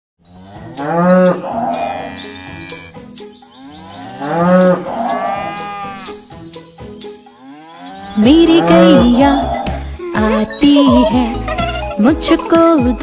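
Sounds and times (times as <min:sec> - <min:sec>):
cow mooing: 0:00.4 - 0:03.0, 0:03.8 - 0:06.2, 0:07.5 - 0:09.6
music with clicking beat: 0:00.7 - 0:02.4, 0:04.2 - 0:06.7, 0:09.0 - 0:13.0.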